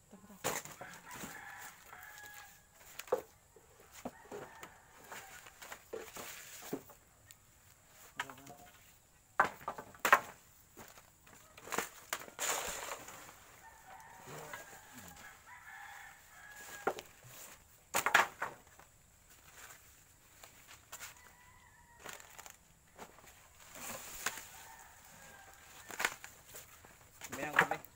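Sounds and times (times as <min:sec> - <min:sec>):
rooster crowing: 0:00.8 - 0:02.8, 0:03.9 - 0:05.7, 0:12.7 - 0:17.2, 0:21.0 - 0:22.6, 0:24.2 - 0:26.2.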